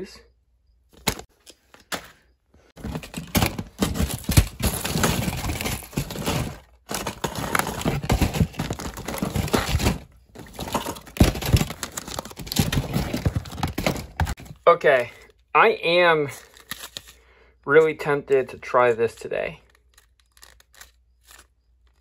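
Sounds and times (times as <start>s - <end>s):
plastic packaging crinkling: 2.8s - 14.5s, 16.3s - 17.2s, 19.7s - 22.0s
lures and weights clattering: 2.8s - 14.6s.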